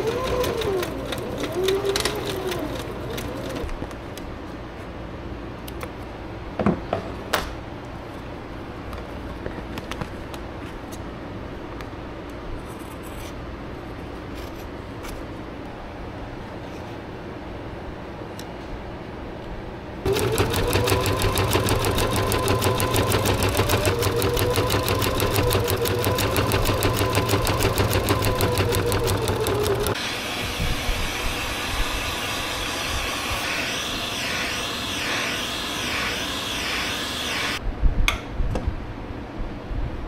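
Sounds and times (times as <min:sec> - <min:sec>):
sewing machine stitching: 0:00.0 - 0:03.8, 0:20.1 - 0:30.0
steady whir: 0:20.1 - 0:37.6.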